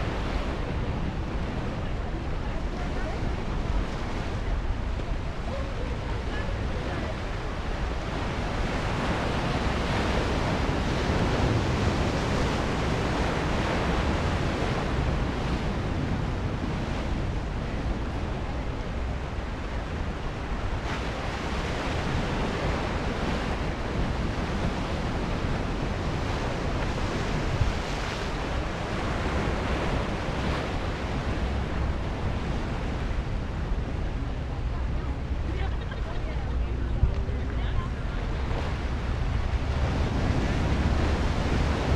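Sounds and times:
ocean surf breaking on rocks: 0:00.0 - 0:41.9
wind rumbling on microphone: 0:00.0 - 0:41.9.

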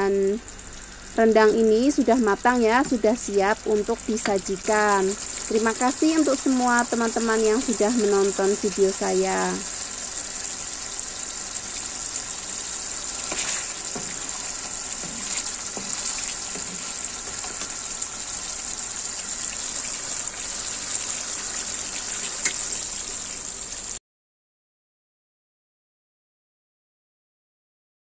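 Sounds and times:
sauce bubbling and sizzling in wok: 0:01.8 - 0:24.0.

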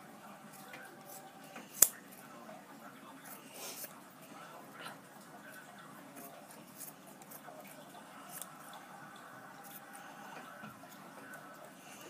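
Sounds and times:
scissors snipping foam: 0:00.5 - 0:02.0, 0:06.2 - 0:07.7, 0:08.3 - 0:08.5.

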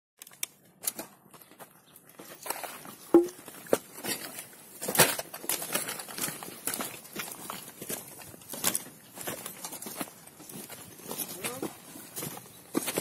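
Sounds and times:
footsteps crunching on rubble: 0:00.6 - 0:13.0
sharp knock: 0:03.2 - 0:03.4.

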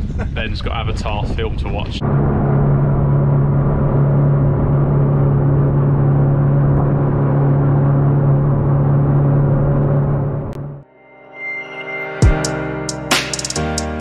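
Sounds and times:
boat engine humming: 0:02.0 - 0:10.9.

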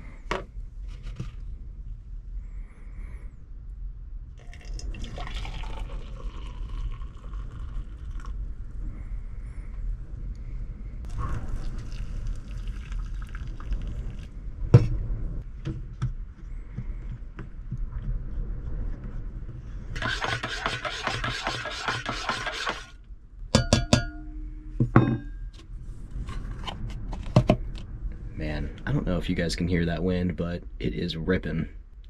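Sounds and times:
strong wind buffeting camper: 0:04.5 - 0:20.6.

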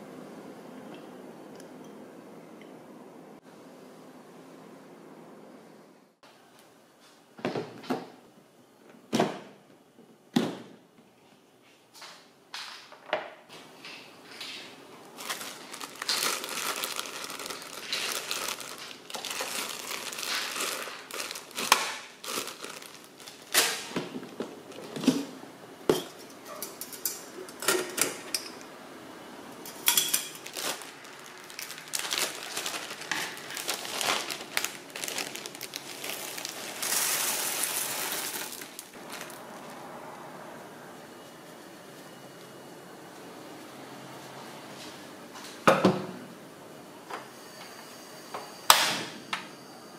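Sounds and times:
plastic bag crinkling: 0:15.0 - 0:24.4, 0:29.7 - 0:39.9
coffee beans rattling into strainer: 0:29.7 - 0:39.4.

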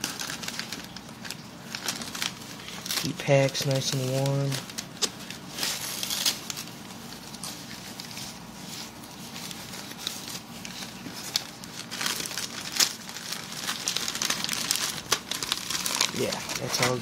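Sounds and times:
newspaper rustling and crinkling: 0:00.0 - 0:17.0.

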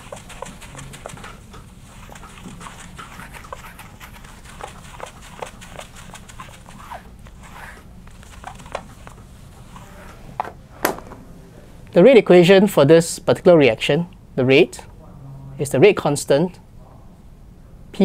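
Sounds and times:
eraser scrubbing whiteboard: 0:00.0 - 0:10.1.

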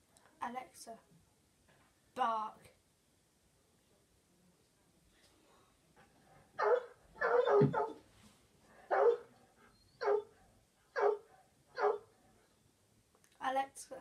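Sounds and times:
recorded dog barking: 0:06.4 - 0:08.1, 0:08.8 - 0:09.4, 0:10.0 - 0:12.2.

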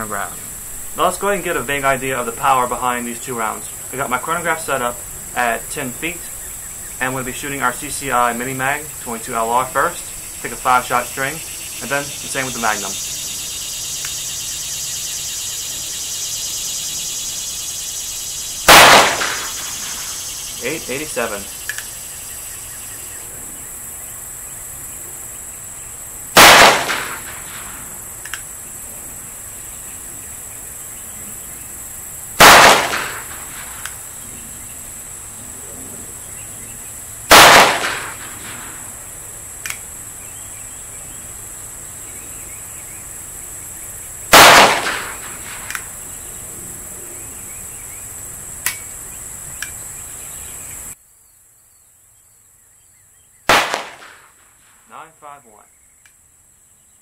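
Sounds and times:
pistol shots: 0:18.7 - 0:20.2, 0:26.4 - 0:27.9, 0:32.4 - 0:33.9, 0:37.3 - 0:38.8, 0:44.3 - 0:45.9, 0:53.5 - 0:54.4.

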